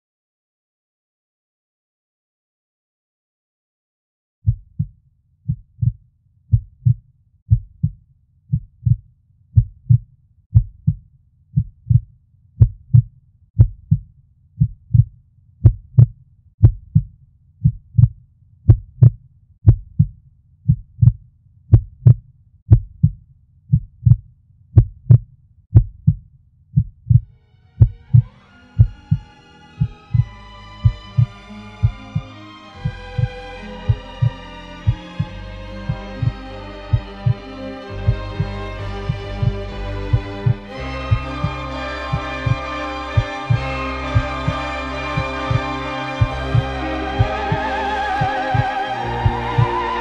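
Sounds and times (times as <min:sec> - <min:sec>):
heartbeat double thump: 0:04.4 - 0:09.0, 0:09.6 - 0:11.0, 0:11.6 - 0:24.2, 0:24.8 - 0:26.2, 0:26.8 - 0:32.2, 0:33.9 - 0:34.3, 0:36.9 - 0:37.4, 0:38.1 - 0:38.5, 0:39.1 - 0:41.5, 0:43.2 - 0:44.6
sustained music: 0:27.4 - 0:50.0.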